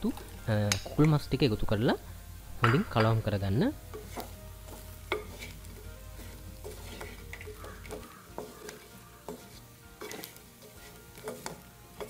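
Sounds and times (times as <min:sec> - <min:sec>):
chicken sizzling: 0:00.0 - 0:12.0
wooden spoon scraping clay pot: 0:03.9 - 0:12.0.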